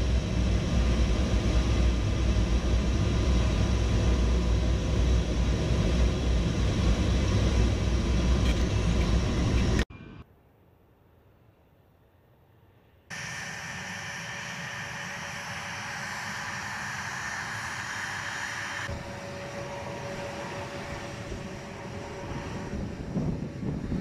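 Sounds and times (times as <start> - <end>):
jet engines whining: 0.0 - 9.9, 13.1 - 24.0
low rumble: 0.0 - 10.2.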